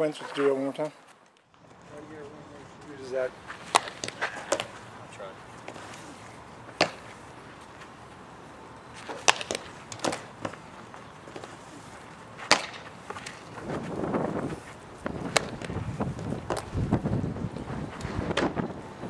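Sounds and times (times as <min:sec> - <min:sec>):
rough rustling noise: 0:00.0 - 0:19.0
bat hitting softball: 0:03.6 - 0:04.7, 0:06.8 - 0:07.1, 0:09.1 - 0:10.6, 0:12.4 - 0:13.4, 0:15.3 - 0:15.8
ball smacking into leather glove: 0:03.6 - 0:04.8, 0:06.7 - 0:07.1, 0:09.1 - 0:10.6, 0:12.4 - 0:13.4.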